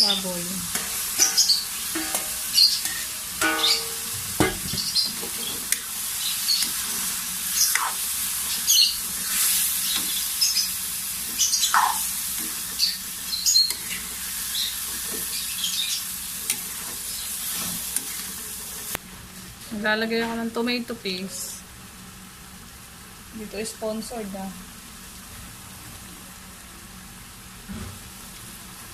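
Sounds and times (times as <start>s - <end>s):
meat sizzling in a wok: 0.0s - 28.9s
metal spatula scraping pan: 0.7s - 4.1s
metal bowl ringing and clanking: 1.2s - 4.7s.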